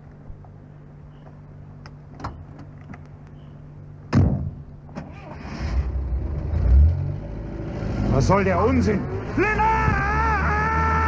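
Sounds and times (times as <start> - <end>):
car door slamming: 4.1 - 4.6
car engine idling and revving: 5.0 - 11.0.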